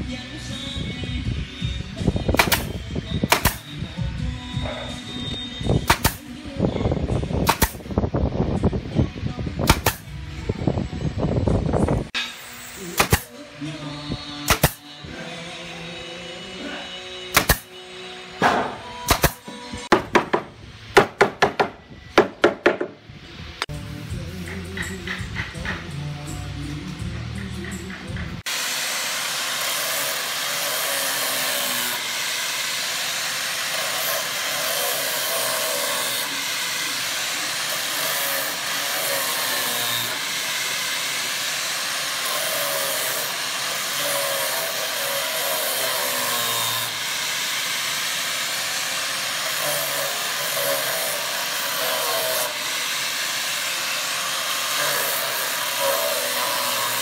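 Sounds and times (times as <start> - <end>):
angle grinder sanding wood: 28.4 - 57.0.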